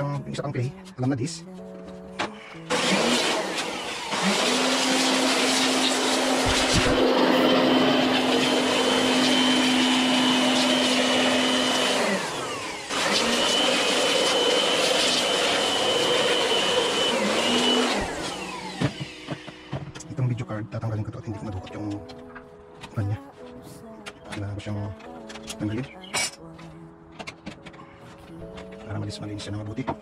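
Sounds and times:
electric blower whining: 2.2 - 22.0.

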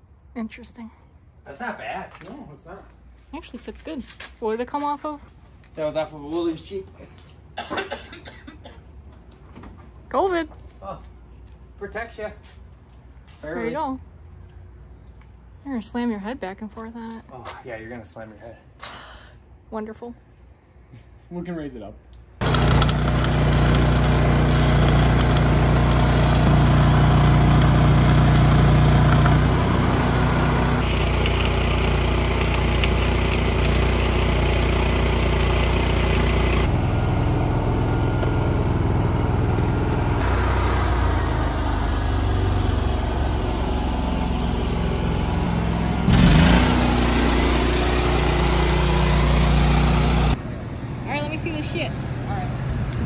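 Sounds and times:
motor engine running: 22.4 - 50.4.

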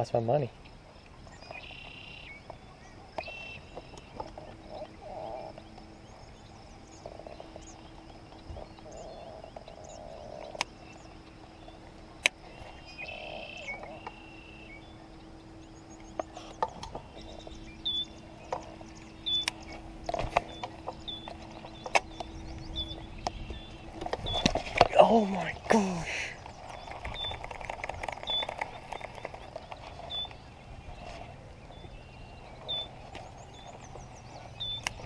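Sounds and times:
faint steady low hum: 0.0 - 35.0
frogs croaking: 0.0 - 35.0
sharp clicks: 19.2 - 23.4, 24.0 - 30.4, 34.7 - 35.0.

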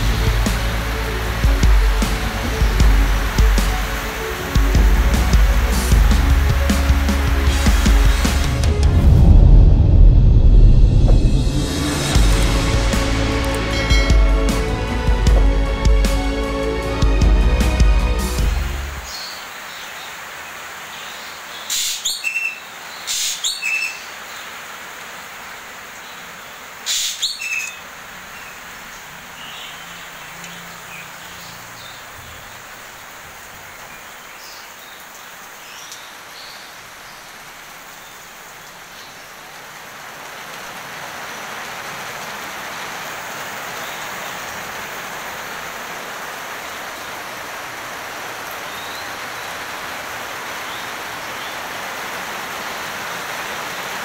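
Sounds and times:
heavy rain on foliage: 0.0 - 54.0
shrill bird calls: 21.7 - 24.1, 26.9 - 27.8.

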